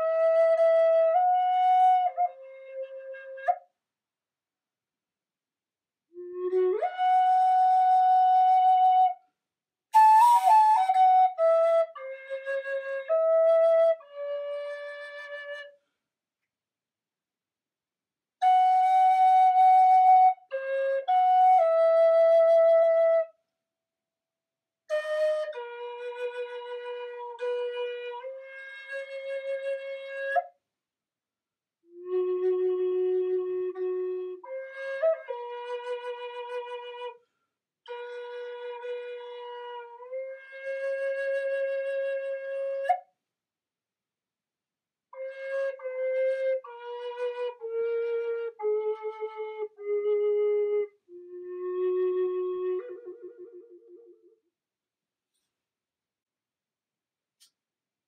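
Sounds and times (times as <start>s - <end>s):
flute playing held notes: 10.0s - 15.7s, 45.2s - 54.3s.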